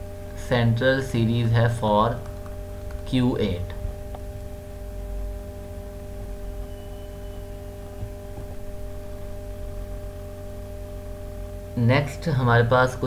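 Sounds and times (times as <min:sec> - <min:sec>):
electrical hum: 0:00.0 - 0:13.0
low rumble: 0:02.2 - 0:11.7.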